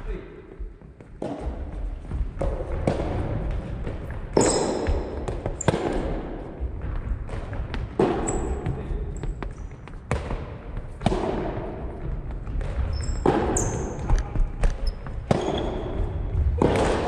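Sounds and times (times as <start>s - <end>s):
ball bouncing on wooden floor: 1.0s - 17.0s
ball hitting racket strings: 1.2s - 17.0s
shoes squeaking on floor: 4.3s - 5.8s, 8.2s - 10.0s, 12.6s - 16.4s.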